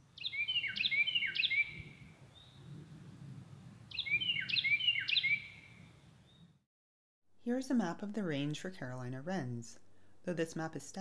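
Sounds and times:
wren singing: 0:00.2 - 0:02.6, 0:03.9 - 0:05.7.

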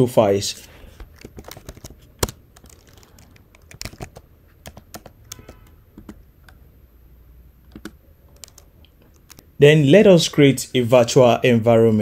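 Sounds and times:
typing on computer keyboard: 0:01.2 - 0:06.6, 0:07.7 - 0:09.4.

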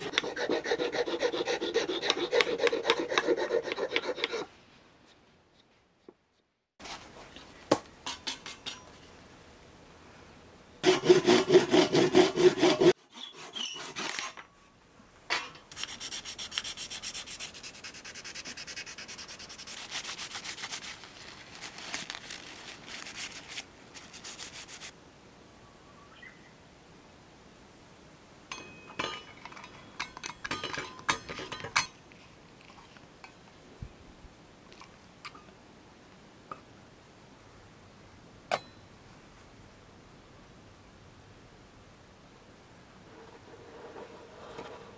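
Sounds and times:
handsaw cutting wood: 0:00.0 - 0:04.5, 0:10.8 - 0:14.3.

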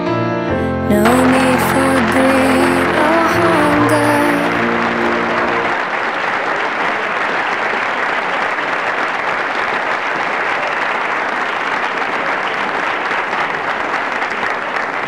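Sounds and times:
music ending: 0:00.6 - 0:05.9
crowd applauding: 0:01.0 - 0:15.0.

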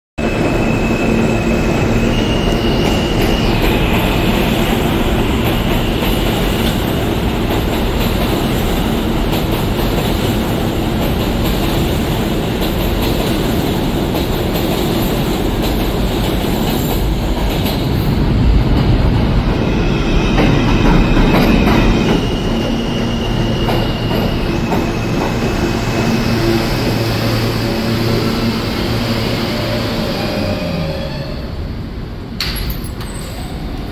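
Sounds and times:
high wheel squeal: 0:00.2 - 0:04.6, 0:21.2 - 0:31.6
train wheels rumbling on rail: 0:00.2 - 0:33.9.

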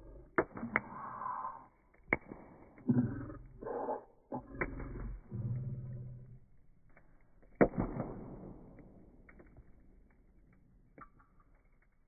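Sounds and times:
wood fire crackling: 0:00.0 - 0:12.0
loud fire pop: 0:02.1 - 0:02.8, 0:07.6 - 0:09.6.

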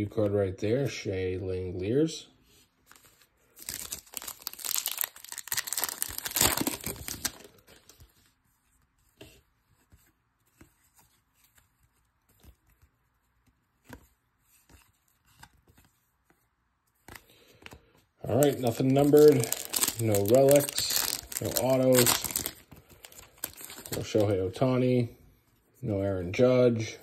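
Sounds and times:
foil wrapper tearing and crinkling: 0:03.6 - 0:07.6, 0:18.3 - 0:24.2.

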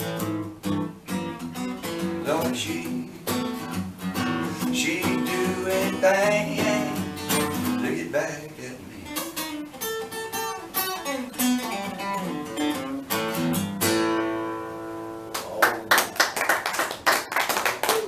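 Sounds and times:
acoustic guitar playing: 0:00.0 - 0:15.9
hand clapping: 0:15.3 - 0:18.0.

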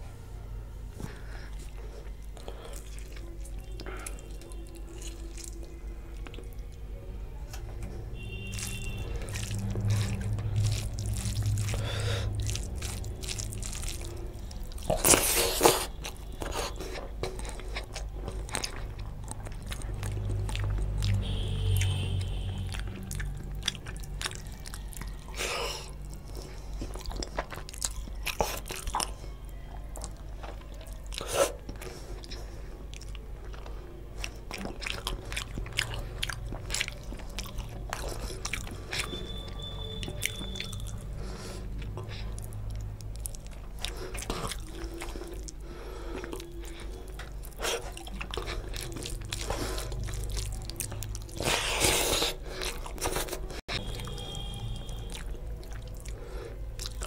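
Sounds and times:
wet chewing and lip smacks: 0:01.5 - 0:06.9, 0:08.5 - 0:57.0
squish of gravy-soaked rice: 0:08.2 - 0:29.1.

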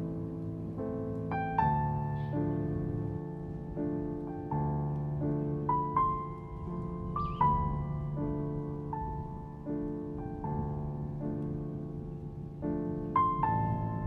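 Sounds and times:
slow gentle piano music: 0:00.0 - 0:14.0.

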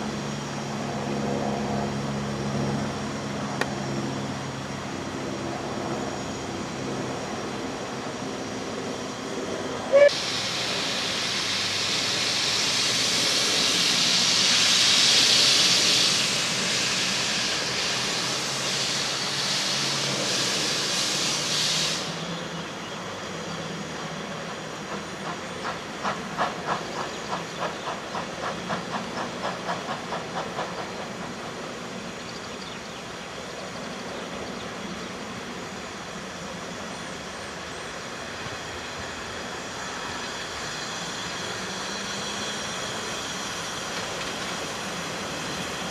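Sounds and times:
train rolling: 0:00.0 - 0:45.9
steam hissing: 0:09.9 - 0:45.9
steam locomotive chuffing: 0:09.9 - 0:45.9.

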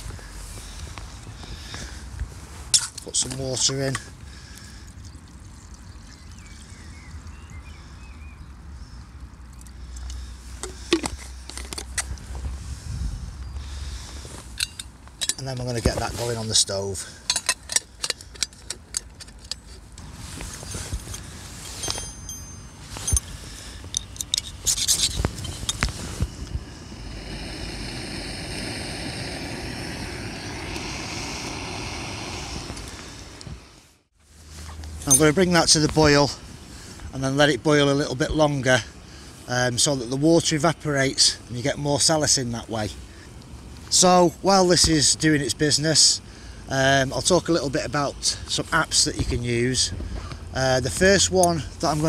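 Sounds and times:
faint bird chirps: 0:05.8 - 0:09.2
wind rumbling on microphone: 0:10.8 - 0:16.7, 0:19.9 - 0:33.9
metallic clicks and knocks: 0:17.3 - 0:19.9, 0:23.9 - 0:25.9
gas stove burning: 0:25.3 - 0:33.8.

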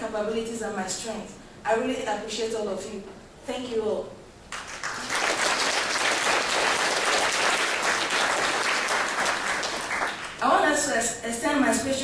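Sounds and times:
audience applauding: 0:04.5 - 0:10.4.

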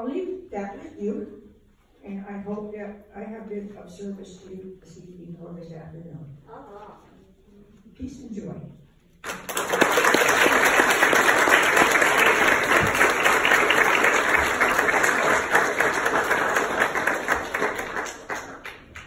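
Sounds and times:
congregation applauding: 0:09.2 - 0:19.0.

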